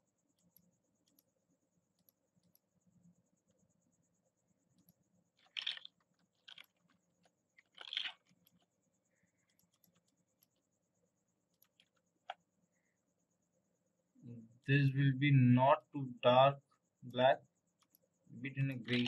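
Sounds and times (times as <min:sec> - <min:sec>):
computer mouse clicks: 0:00.3 - 0:03.6, 0:04.7 - 0:08.8, 0:09.4 - 0:10.7, 0:11.4 - 0:12.5, 0:17.8 - 0:18.1
short scratchy noises: 0:05.4 - 0:06.6, 0:07.6 - 0:08.3.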